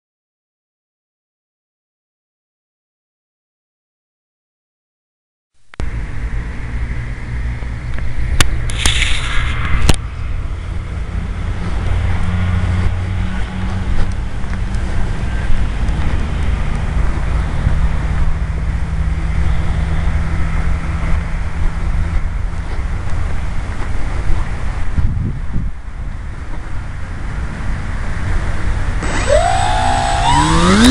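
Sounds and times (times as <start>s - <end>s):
wind buffeting microphone: 20.2s - 27.9s.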